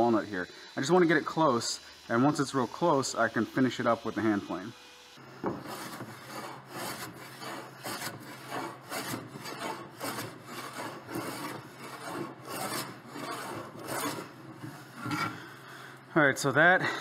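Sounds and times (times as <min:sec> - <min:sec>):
hand plane shaving wood: 0:05.5 - 0:15.2.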